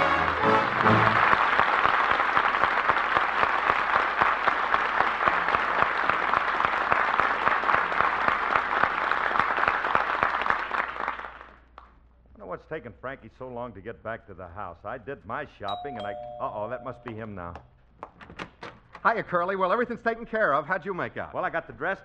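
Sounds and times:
audience applauding: 0.0s - 11.7s.

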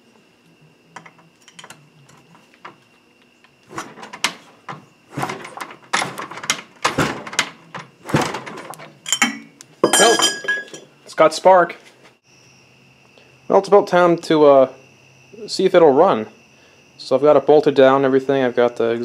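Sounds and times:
engine kickstarter knocks: 3.7s - 9.4s.

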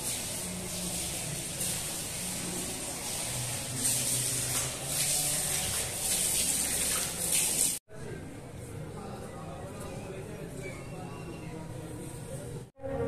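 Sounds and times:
water running from a tap: 0.0s - 7.8s
water splashing in a basin: 0.0s - 7.8s.

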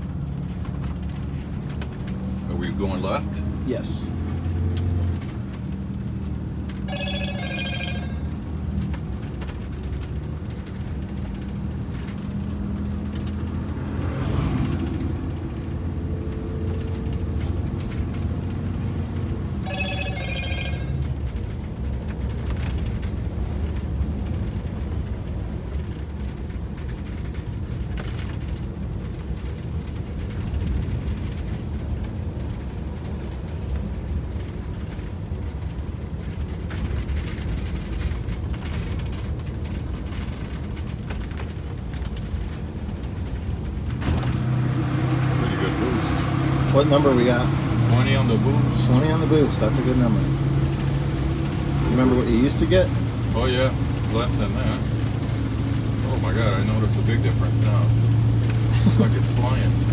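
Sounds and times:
diesel bus engine running: 0.0s - 59.9s
short ringing chime: 6.9s - 8.3s, 19.6s - 21.0s.

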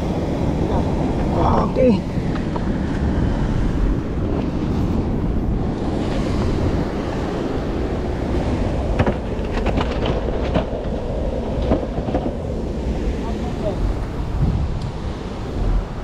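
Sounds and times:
surf washing: 0.0s - 16.0s
wind buffeting microphone: 0.0s - 16.0s.

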